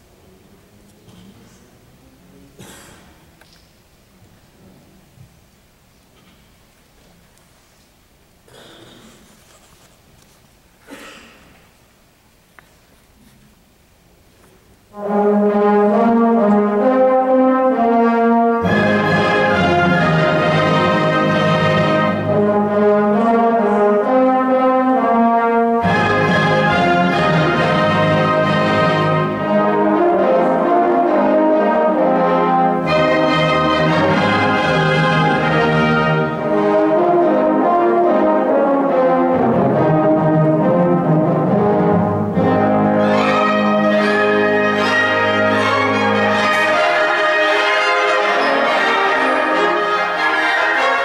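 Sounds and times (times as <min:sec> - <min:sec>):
wind band playing chords: 0:14.8 - 0:51.0
low brass: 0:14.9 - 0:51.0.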